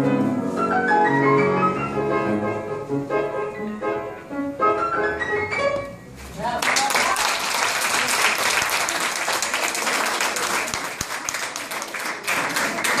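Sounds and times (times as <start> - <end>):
audience applauding: 6.4 - 13.0.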